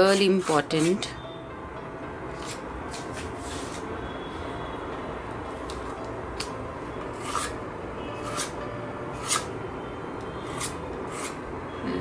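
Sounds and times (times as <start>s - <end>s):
palette knife scraping paste: 0.0s - 1.2s, 7.2s - 7.6s.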